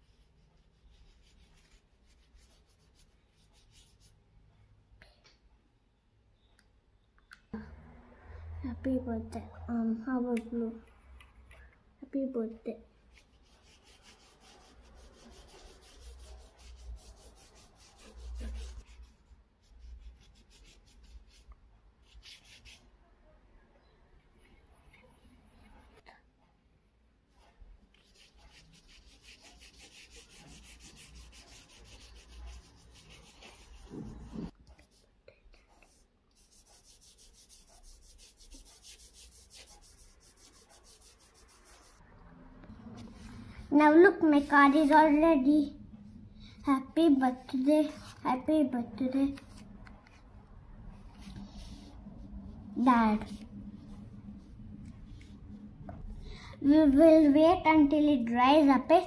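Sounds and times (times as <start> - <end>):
paintbrush scrubbing paper: 0.0 - 4.2, 13.1 - 22.9, 27.3 - 42.0, 42.8 - 45.3, 47.0 - 50.2, 50.8 - 55.6.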